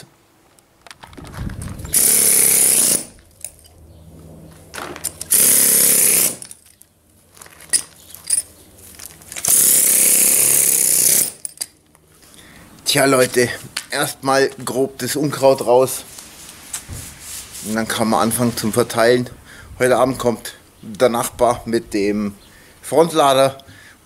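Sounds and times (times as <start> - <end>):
compressed air tool bursts: 1.9 - 3.2, 5.2 - 6.5, 9.4 - 11.5.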